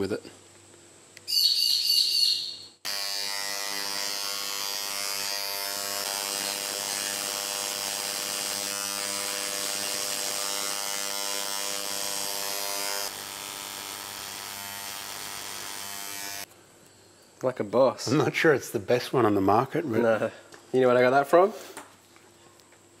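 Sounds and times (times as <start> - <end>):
electric engraving pen buzzing: 2.8 - 16.5.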